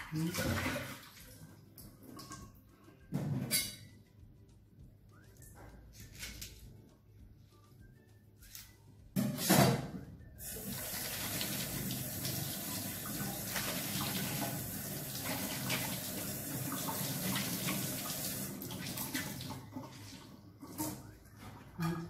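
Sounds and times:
mushrooms rinsed by hand: 10.5 - 22.0.

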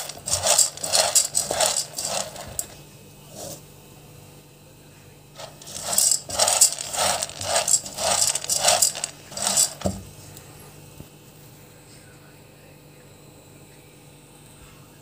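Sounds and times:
spatula scraping pasta in pan: 0.0 - 2.8.

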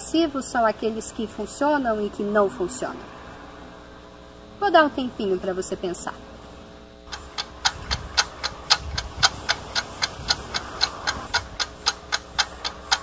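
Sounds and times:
clock ticking: 7.1 - 13.0.

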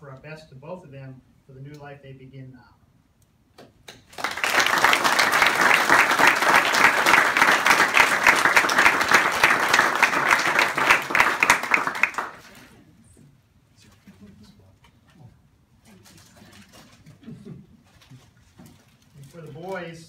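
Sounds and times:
audience applauding: 4.1 - 12.7.

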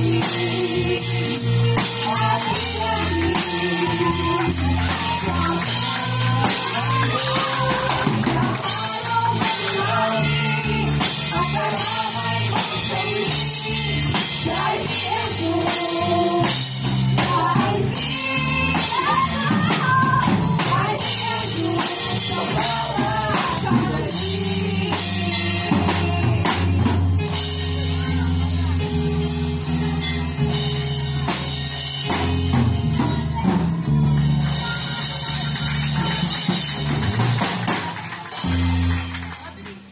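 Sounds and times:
girls singing into microphones: 0.0 - 27.0
pop backing track with drums: 0.0 - 39.9.

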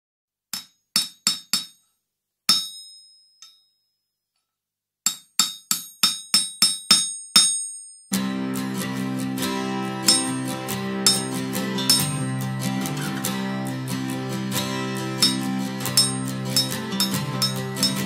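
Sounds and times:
band playing held chords: 8.1 - 18.0
hammer ringing on anvil: 10.1 - 10.4, 11.0 - 11.3, 11.9 - 12.2, 15.2 - 18.0.

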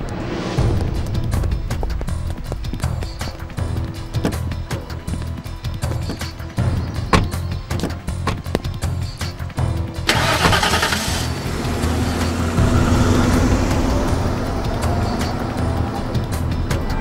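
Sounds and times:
tyres on brick paving: 0.0 - 10.5, 11.1 - 17.0
background music: 0.0 - 17.0
short knocks: 6.9 - 8.9
car engine starting and driving off: 10.0 - 16.8.

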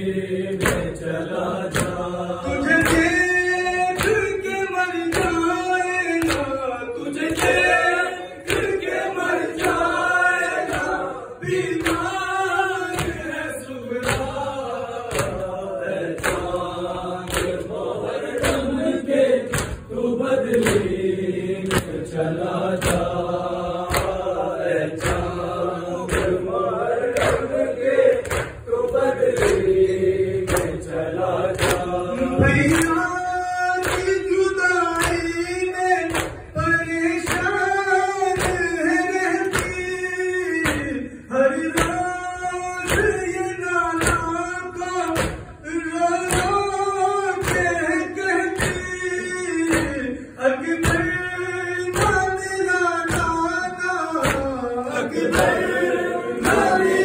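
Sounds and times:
man singing a lament: 0.0 - 57.0
men chanting in chorus: 0.0 - 57.0
hands slapping chests: 0.5 - 1.0, 1.6 - 3.2, 3.9 - 5.5, 6.2 - 6.6, 8.4 - 12.2, 12.9 - 13.4, 14.0 - 14.4, 15.0 - 18.8, 19.4 - 21.0, 21.6 - 22.0, 22.7 - 29.8, 30.4 - 30.8, 31.5 - 33.0, 33.8 - 34.3, 34.9 - 35.3, 36.1 - 36.5, 37.2 - 37.6, 38.3 - 38.7, 40.5 - 41.0, 41.7 - 42.1, 42.8 - 43.2, 45.0 - 45.6, 46.2 - 46.6, 47.4 - 47.8, 48.5 - 48.9, 49.6 - 50.1, 51.9 - 52.3, 54.2 - 54.6, 55.2 - 55.8.

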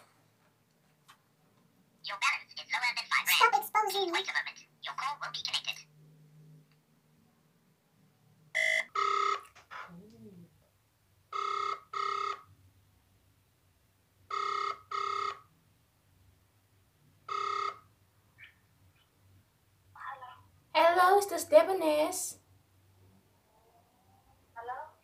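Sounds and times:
phone ringback tone: 8.6 - 9.5, 11.3 - 12.5, 14.3 - 15.4, 17.3 - 17.8.

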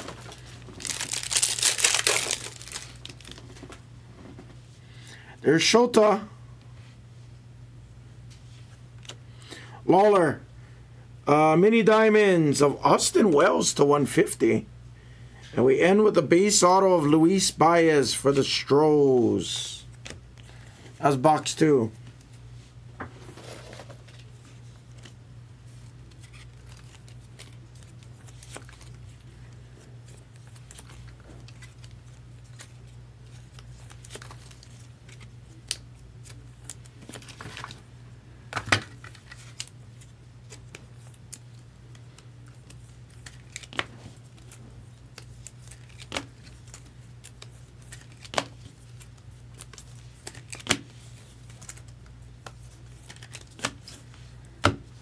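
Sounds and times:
wrapping being cut and torn: 0.0 - 3.4
packaging handled: 0.0 - 3.8
steady low hum: 0.0 - 55.0.

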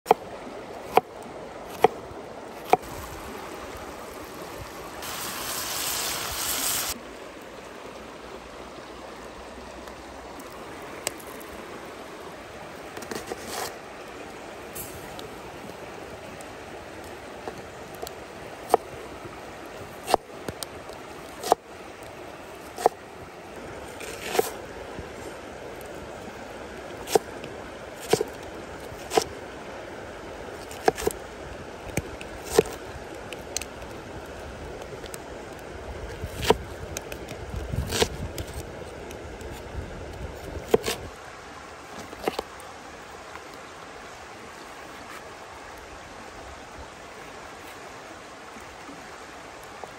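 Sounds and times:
stream rushing: 0.1 - 49.9.

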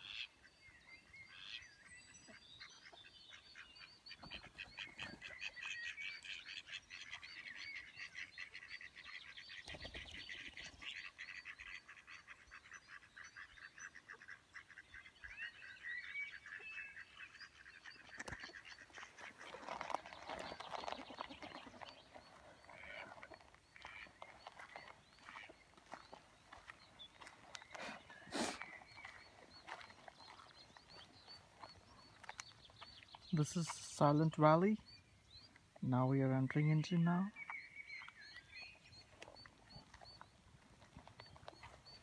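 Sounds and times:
ducks quacking: 1.3 - 35.0
duck wings flapping: 9.6 - 10.7.

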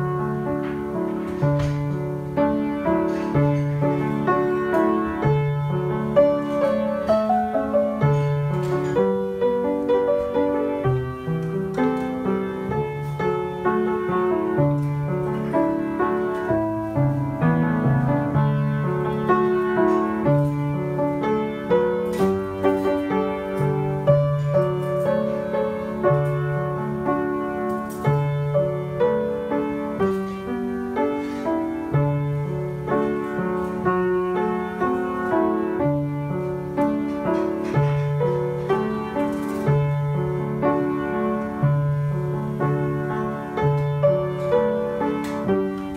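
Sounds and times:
solo piano hymn: 0.0 - 45.9.

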